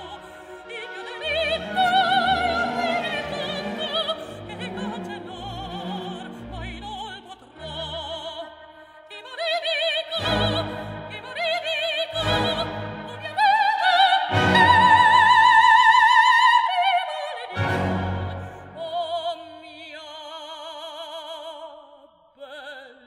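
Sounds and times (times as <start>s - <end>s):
woman singing opera: 0.0s - 23.0s
orchestra playing heavy chords: 10.2s - 11.3s, 12.1s - 13.4s, 17.5s - 18.8s.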